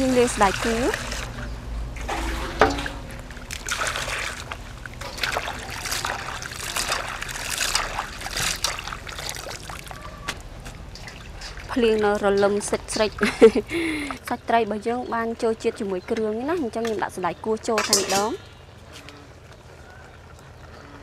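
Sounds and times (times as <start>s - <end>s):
water splashing: 0.0s - 18.6s
water trickling into bowl: 0.0s - 18.6s
hands swishing vegetables in water: 3.5s - 12.4s.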